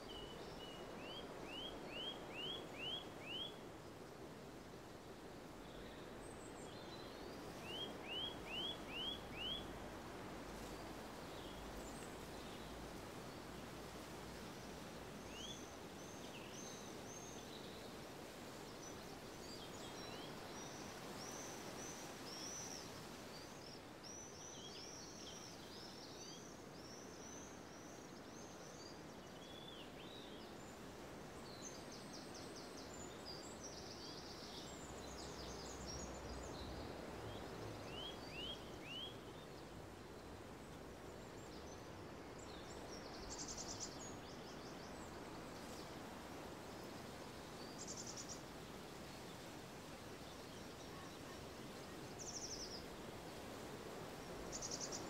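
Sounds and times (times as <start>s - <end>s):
songbirds singing and chirping: 0.0s - 3.6s, 5.6s - 9.8s, 31.4s - 49.1s
faint steady outdoor rush: 0.0s - 55.0s.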